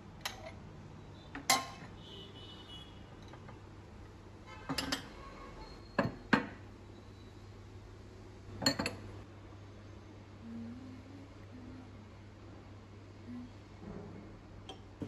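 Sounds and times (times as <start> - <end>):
bowls and cups clinking: 1.4 - 1.9, 4.6 - 5.1, 8.6 - 9.1.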